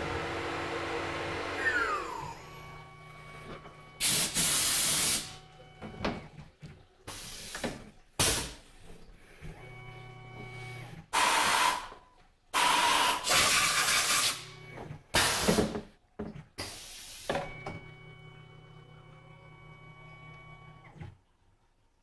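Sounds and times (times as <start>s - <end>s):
machine hum with buzz: 0.0s - 6.4s, 9.4s - 11.0s, 14.4s - 15.0s, 17.5s - 21.1s
compressed air hissing blasts: 4.0s - 5.4s.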